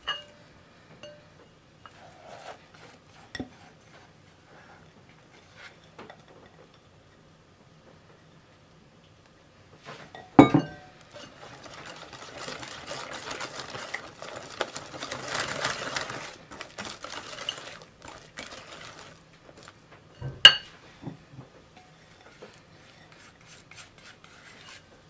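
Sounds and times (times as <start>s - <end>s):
whisk beating batter: 11.1s - 19.8s, 22.1s - 25.0s.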